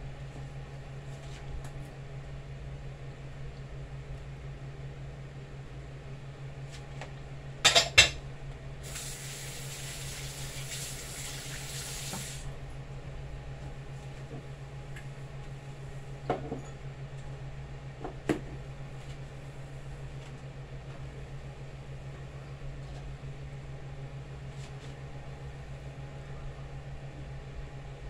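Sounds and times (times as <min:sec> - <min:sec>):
steady low hum: 0:00.0 - 0:28.0
dishes clattering in sink: 0:07.7 - 0:08.2
tap running: 0:10.0 - 0:12.4.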